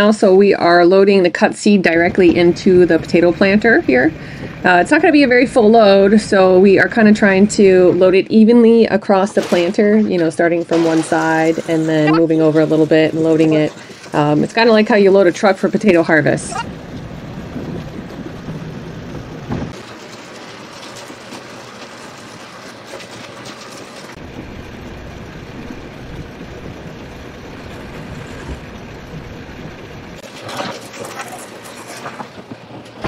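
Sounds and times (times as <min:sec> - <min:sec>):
deep machine hum: 0:00.8 - 0:09.0, 0:10.0 - 0:19.8, 0:24.1 - 0:30.3
machinery rattling: 0:01.8 - 0:33.0.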